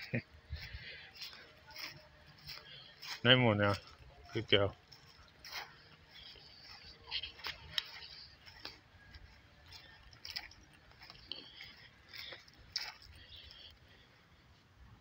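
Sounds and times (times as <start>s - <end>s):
footsteps crunching dry leaves: 0.0s - 13.8s.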